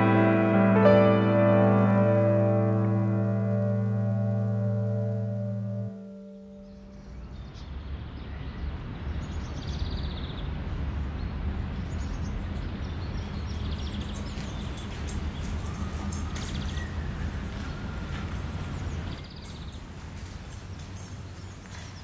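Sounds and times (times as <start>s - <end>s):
birds chirping: 2.1s - 22.0s
footsteps on pavement: 13.2s - 22.0s.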